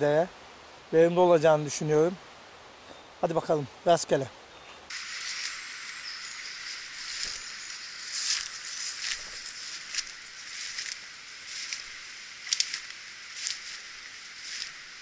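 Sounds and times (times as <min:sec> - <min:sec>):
background hiss: 0:00.0 - 0:15.0
footsteps through leafy undergrowth: 0:04.9 - 0:15.0.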